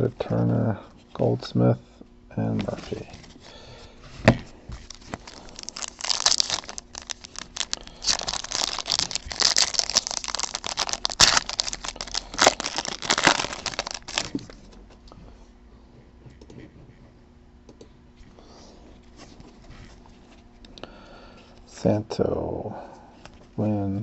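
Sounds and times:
foil wrapper tearing and crinkling: 0:04.8 - 0:14.6.

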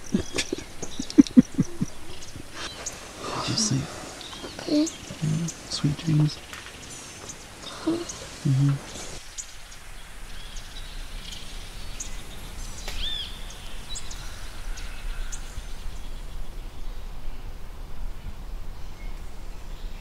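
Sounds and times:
bird chirps and calls: 0:00.0 - 0:09.6
steady low background noise: 0:00.0 - 0:20.0.

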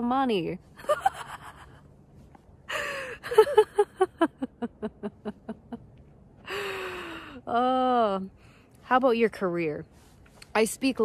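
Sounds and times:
woman laughing: 0:00.8 - 0:01.8, 0:02.7 - 0:05.9.

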